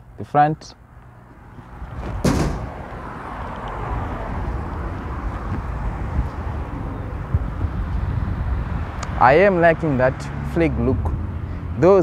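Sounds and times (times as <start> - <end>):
outdoor background noise: 0.0 - 12.0
sharp knock: 2.2 - 2.8.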